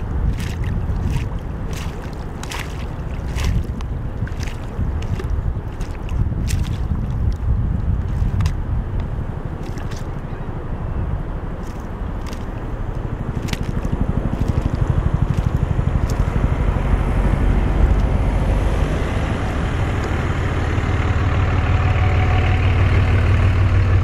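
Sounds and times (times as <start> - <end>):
vehicle engine idling: 8.7 - 24.0.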